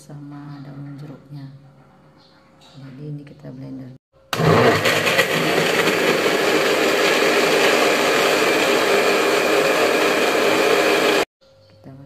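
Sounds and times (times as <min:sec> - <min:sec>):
blender grinding paste: 0:04.3 - 0:11.3.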